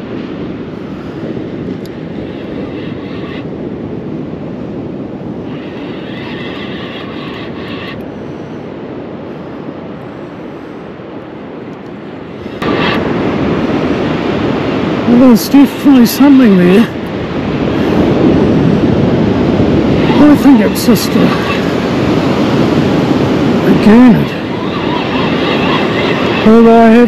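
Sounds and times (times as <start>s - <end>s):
wind and surf rumble: 0.0s - 27.0s
fishing reel gears whirring: 5.4s - 8.2s.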